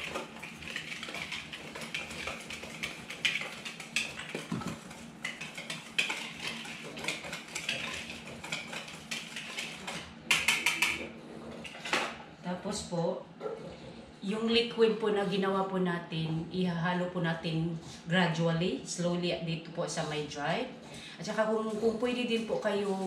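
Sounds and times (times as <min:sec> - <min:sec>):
utensil scraping glass bowl: 0:00.0 - 0:11.9.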